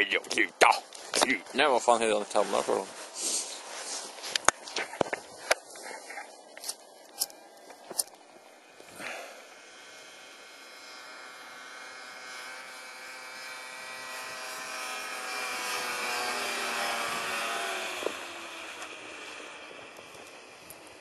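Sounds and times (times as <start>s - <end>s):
snowmobile engine passing by: 1.6s - 4.1s, 8.2s - 21.0s.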